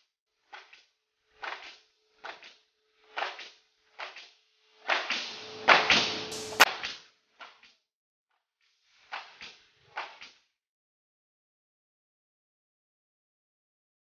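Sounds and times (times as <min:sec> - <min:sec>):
nail gun hiss and bang: 0:04.9 - 0:06.7.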